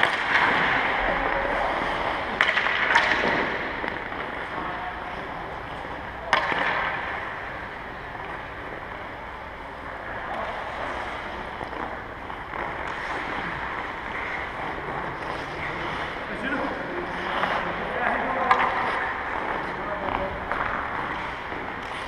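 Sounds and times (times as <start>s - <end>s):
sharp crack: 0.0s - 4.7s, 5.8s - 7.6s
clatter of sticks and pucks: 0.0s - 9.0s, 9.7s - 22.0s
skates scraping on ice: 0.0s - 22.0s.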